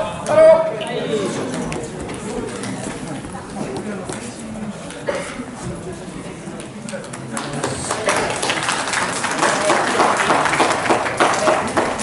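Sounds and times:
crowd applauding: 6.9 - 12.0.

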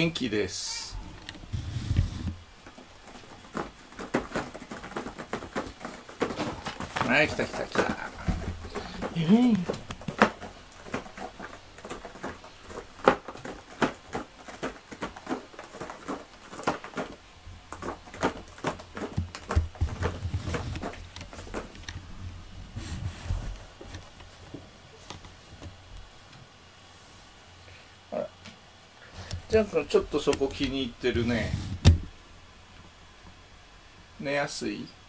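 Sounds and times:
cat brushing microphone: 31.1 - 31.8.

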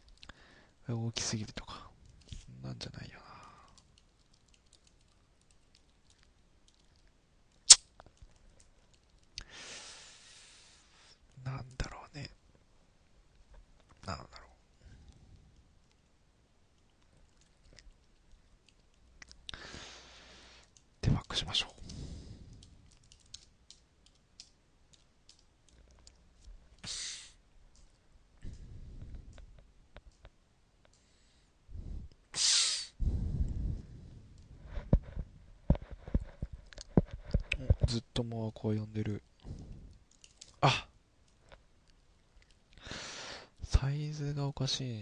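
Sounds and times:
soft breathy hiss: 0.0 - 4.0, 9.3 - 12.4, 13.9 - 16.2, 19.2 - 23.1, 26.4 - 30.0, 30.8 - 41.6, 42.7 - 45.0
short breathy hiss: 9.4 - 11.2, 26.8 - 27.4, 31.8 - 34.1.

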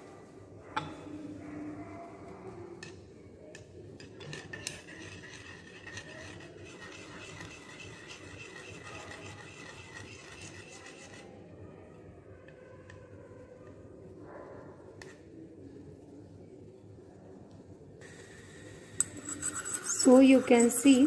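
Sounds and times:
glass rod scraping porcelain dish: 4.0 - 11.3, 19.0 - 21.0.

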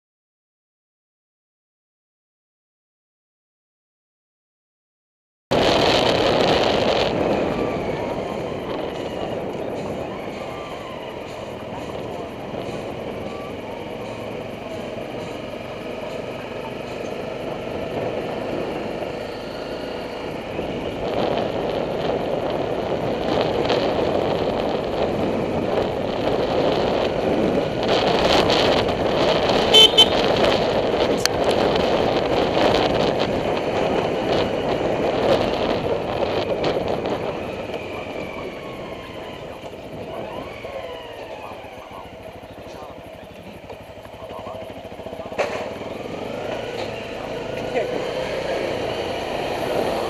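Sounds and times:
dirt bike engine rumble: 5.5 - 50.0
wind noise: 5.5 - 50.0
motorcycle horn toots: 29.5 - 30.6.

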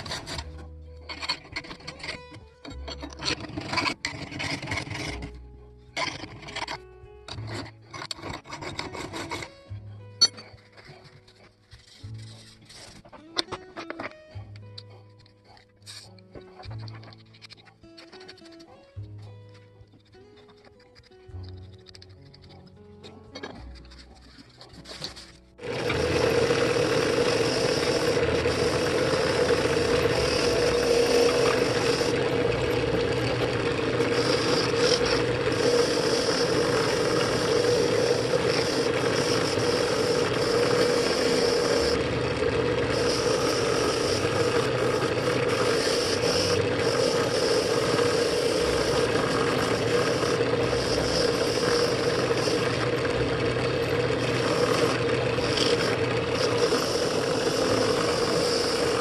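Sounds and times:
wire brush scraping metal: 0.0 - 5.3, 6.0 - 9.6, 10.3 - 14.0, 23.4 - 42.1
drill press motor hum: 0.0 - 9.6, 23.4 - 59.0.

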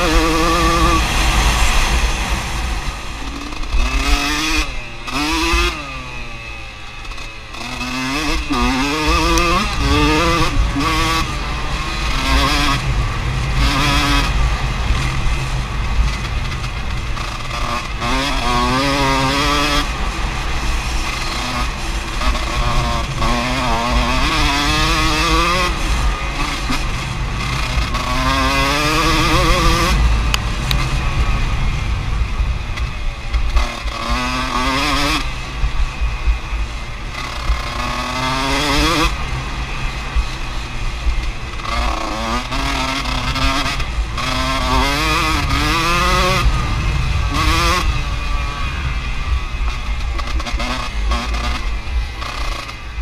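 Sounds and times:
low rumble: 0.0 - 5.0
motorcycle engine revving: 0.0 - 53.0.

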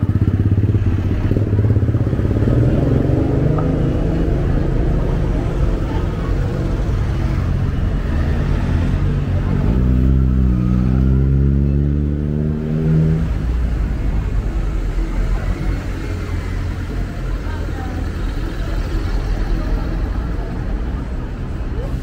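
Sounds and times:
street traffic rumbling: 0.0 - 22.0
vehicle engine accelerating past: 7.3 - 13.5.

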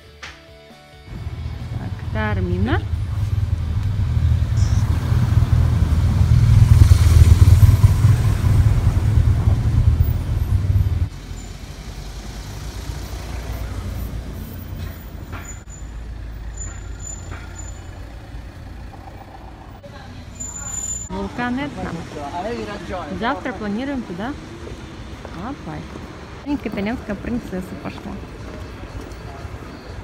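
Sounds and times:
town street background: 0.0 - 30.0
motorcycle engine rumbling: 1.1 - 27.3.

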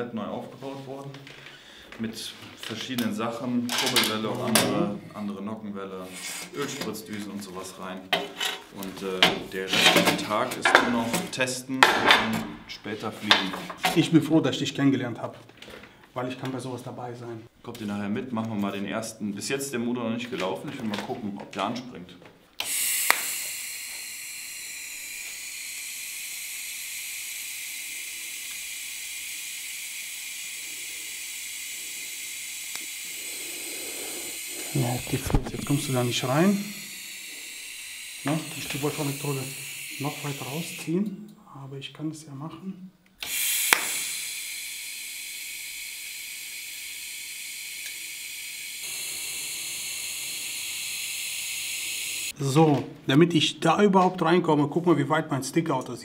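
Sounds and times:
welding arc hissing: 22.6 - 40.9, 43.2 - 52.4
sharp crack of arc striking: 43.2 - 44.1.

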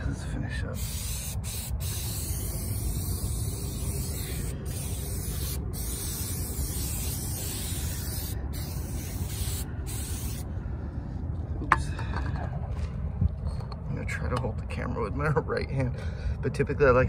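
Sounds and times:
aerosol can spraying hiss: 0.8 - 10.5.

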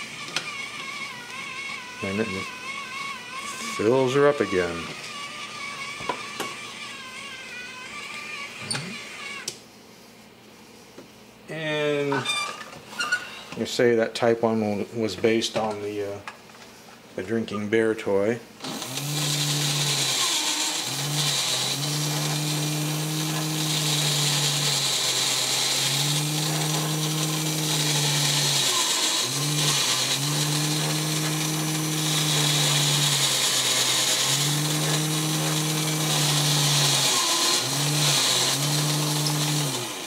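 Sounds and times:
toy motor and gears whirring: 0.5 - 9.5.

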